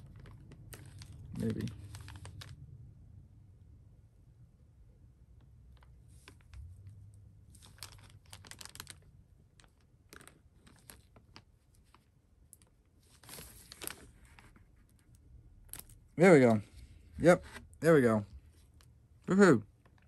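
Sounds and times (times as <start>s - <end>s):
plastic rustling: 0.0s - 2.6s, 5.7s - 17.7s.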